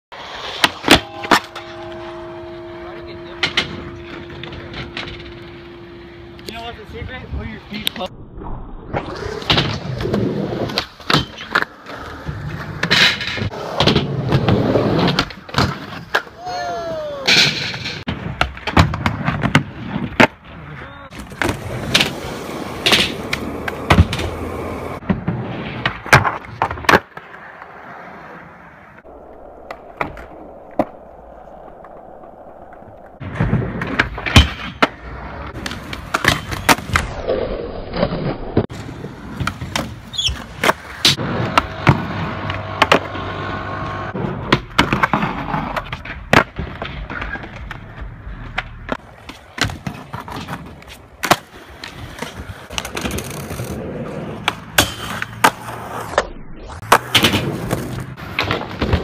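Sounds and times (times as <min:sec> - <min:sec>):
skateboards rolling on concrete: 0:00.1 - 0:08.1, 0:08.9 - 0:59.0
skateboard clacks: 0:17.2 - 0:27.8, 0:38.7 - 0:56.2, 0:56.8 - 0:59.0.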